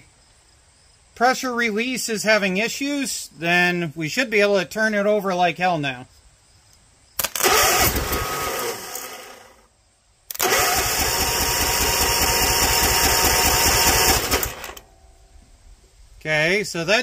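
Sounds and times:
engine cranking by starter: 0:07.2 - 0:09.6, 0:10.3 - 0:14.9.

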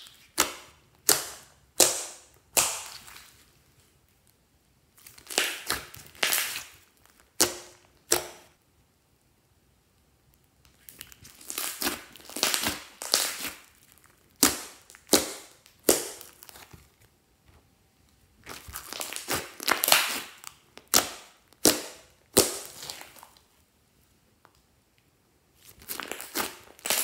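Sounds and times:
sharp slime pops: 0:00.4 - 0:03.2
slime squeezed and stretched: 0:05.0 - 0:08.2, 0:10.8 - 0:16.9, 0:18.4 - 0:23.4, 0:25.6 - 0:27.0
sticky wet crackling: 0:18.4 - 0:21.8, 0:25.6 - 0:27.0.

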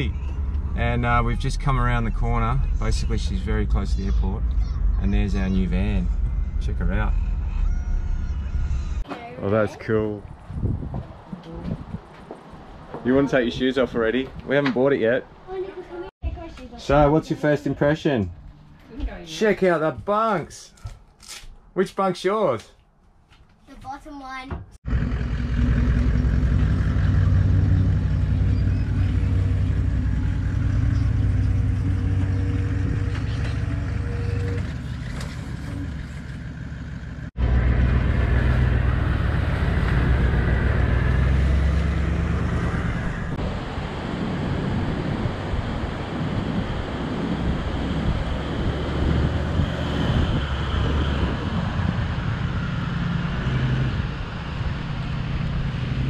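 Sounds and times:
diesel engine running: 0:00.0 - 0:09.0, 0:24.8 - 0:56.0.

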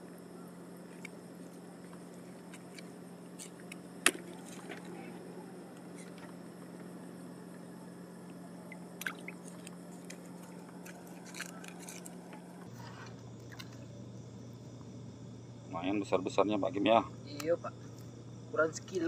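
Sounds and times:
low hum: 0:00.0 - 0:19.0
fishing net rustling: 0:09.0 - 0:13.8.

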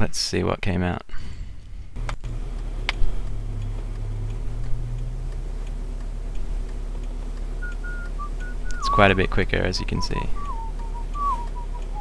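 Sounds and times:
car engine hum: 0:01.6 - 0:12.0
faint ticks: 0:02.0 - 0:08.8.

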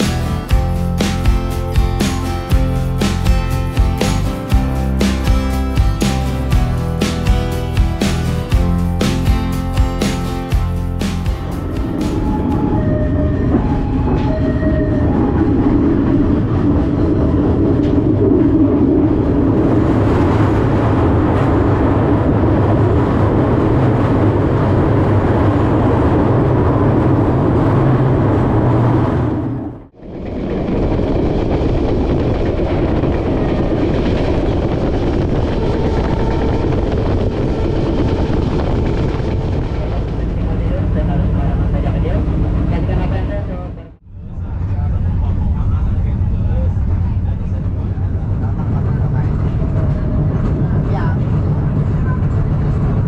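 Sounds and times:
train running on rails: 0:10.6 - 0:53.0.

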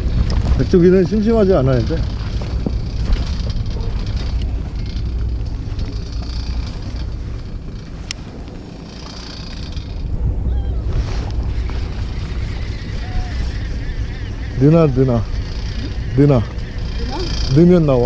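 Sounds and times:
steady low rumble: 0:00.0 - 0:18.0
wind buffeting microphone: 0:00.0 - 0:18.0.

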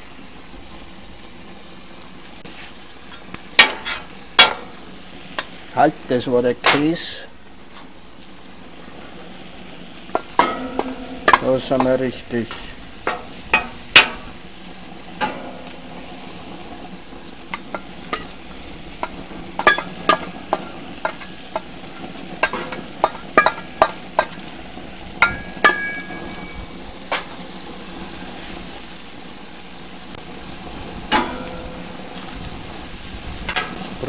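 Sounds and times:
meat and onions sizzling: 0:00.0 - 0:34.0
metal spatula scraping and clanking: 0:02.5 - 0:05.6, 0:10.0 - 0:14.4, 0:15.1 - 0:16.3, 0:17.4 - 0:24.5, 0:25.2 - 0:27.4, 0:31.1 - 0:31.9, 0:33.5 - 0:34.0.

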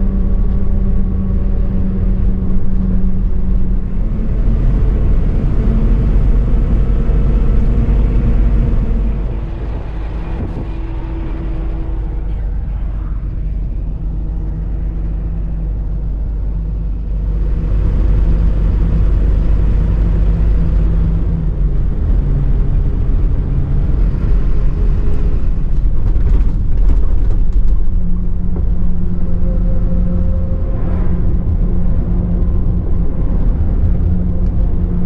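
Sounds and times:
truck diesel engine running: 0:00.0 - 0:26.8
road noise: 0:00.0 - 0:35.0.

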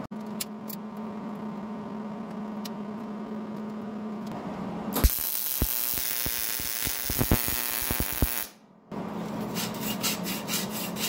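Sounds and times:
welding arc crackling and popping: 0:05.0 - 0:08.6
hand rubbing along saw blade: 0:09.3 - 0:11.0.

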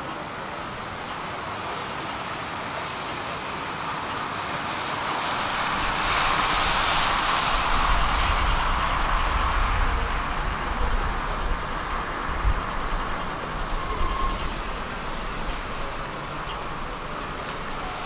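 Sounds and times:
city traffic: 0:00.0 - 0:18.0
vehicle approaching rumble: 0:05.4 - 0:18.0.

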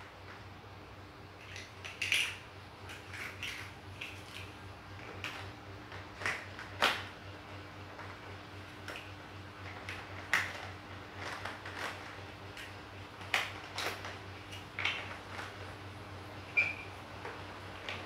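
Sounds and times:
faint steady hum: 0:00.0 - 0:18.0
plastic blocks clicking together: 0:01.4 - 0:07.0.

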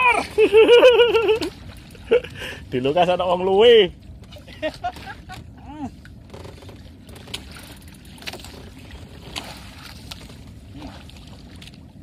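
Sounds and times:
boat engine rumble: 0:00.0 - 0:12.0.

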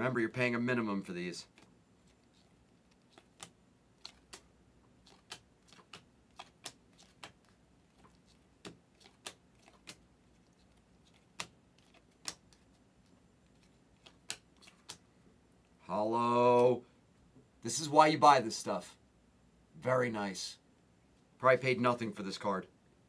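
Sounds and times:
cards flipped with sharp clicks: 0:01.5 - 0:12.8, 0:13.5 - 0:15.0.

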